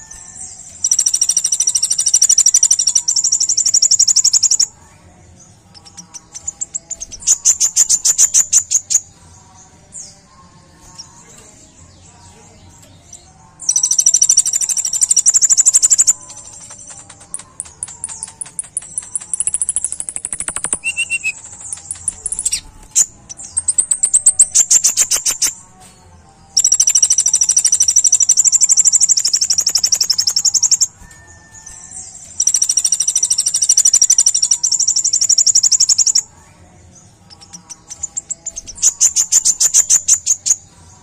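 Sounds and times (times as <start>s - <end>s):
bird singing high trills: 0.0s - 4.8s, 12.9s - 25.7s, 26.6s - 36.4s, 37.2s - 41.0s.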